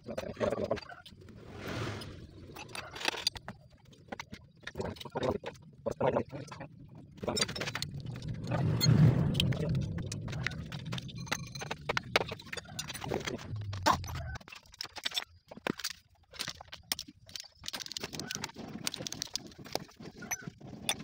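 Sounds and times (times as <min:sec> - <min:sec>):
low rumble: 0:06.5 - 0:14.4.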